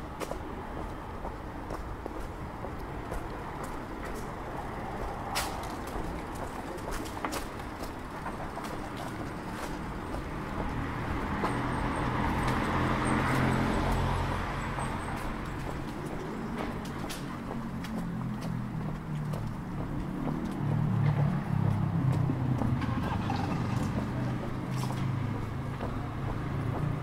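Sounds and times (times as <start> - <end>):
street traffic: 0.0 - 27.0
vehicle passing close by: 17.5 - 27.0.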